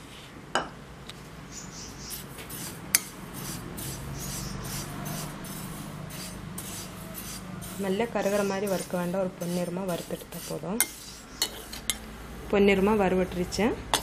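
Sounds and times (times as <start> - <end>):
seeds scraping over pan: 2.1 - 11.9.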